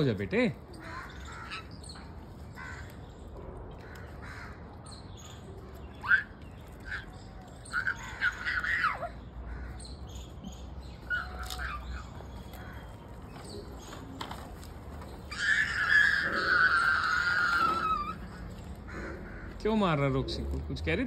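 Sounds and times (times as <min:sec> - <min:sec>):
small birds chirping: 0:00.0 - 0:21.0
crows cawing: 0:00.8 - 0:05.3, 0:06.0 - 0:10.4, 0:11.1 - 0:13.9, 0:15.1 - 0:20.2.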